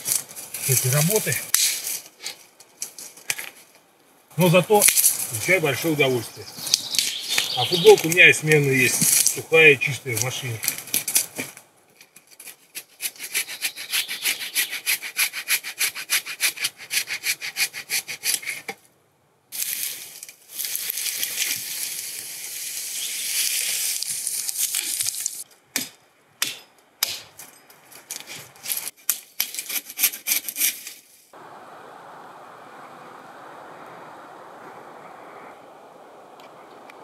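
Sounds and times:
rustling through branches: 0.0 - 16.7, 19.5 - 25.7, 27.1 - 37.0
hand saw cutting wood: 12.4 - 18.7, 28.2 - 31.0.

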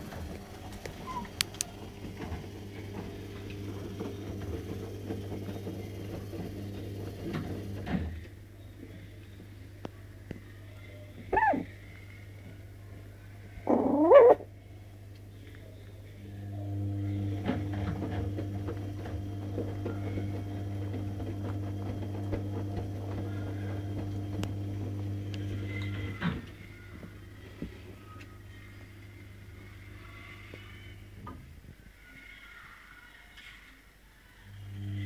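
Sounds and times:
steady low hum: 0.0 - 32.1, 34.2 - 35.0
small clicks: 0.7 - 1.7
puppy whining cry: 11.3 - 11.7, 13.6 - 14.5.

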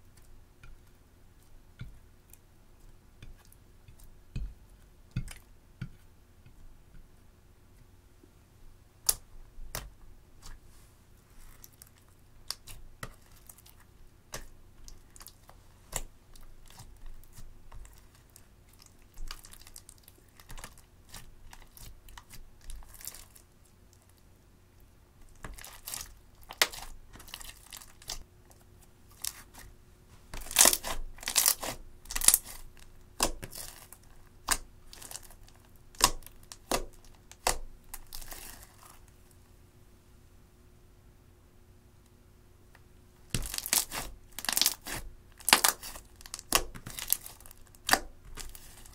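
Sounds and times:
slime popping and crackling: 25.3 - 28.2, 30.4 - 38.8, 43.3 - 48.9.

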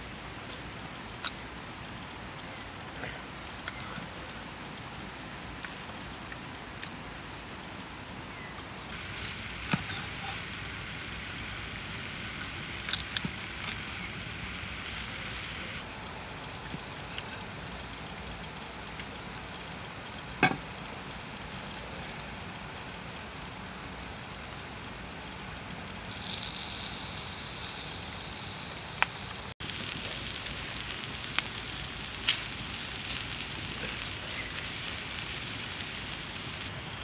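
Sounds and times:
food sizzling on hot stone: 0.0 - 15.8, 26.0 - 36.7.

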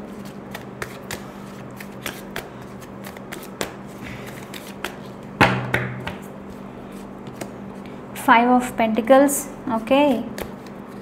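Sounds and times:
cards being shuffled: 0.1 - 7.9, 10.0 - 11.0.

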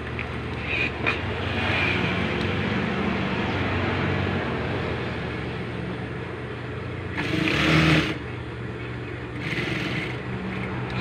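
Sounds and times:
sewing machine running: 7.1 - 8.2, 9.3 - 10.3.

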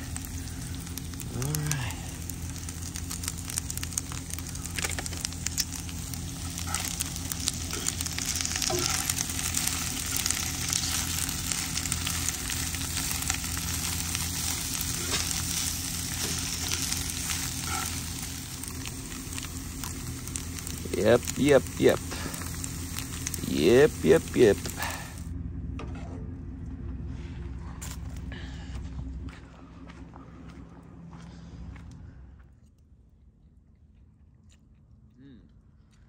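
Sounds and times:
food sizzling in a pan: 0.0 - 25.2
low hum: 0.0 - 36.0.

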